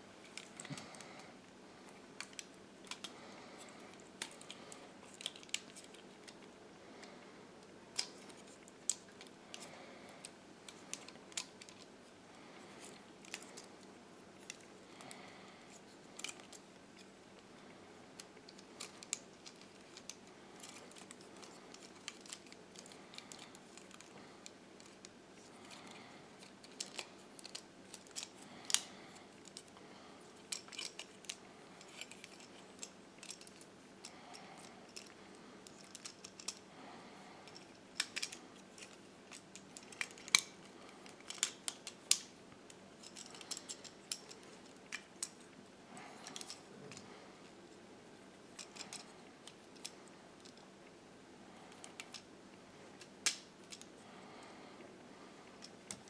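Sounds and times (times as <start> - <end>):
faint room hum: 0.0 - 56.0
plastic toy clicks and snaps: 53.0 - 53.9.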